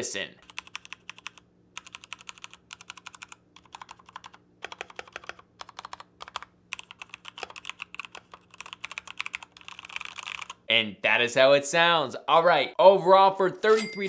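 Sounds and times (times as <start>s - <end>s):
mechanical keyboard typing: 0.4s - 10.6s.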